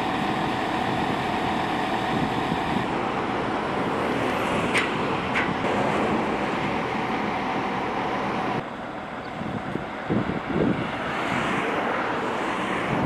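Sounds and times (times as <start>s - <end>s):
road traffic and engine noise: 0.0s - 13.0s.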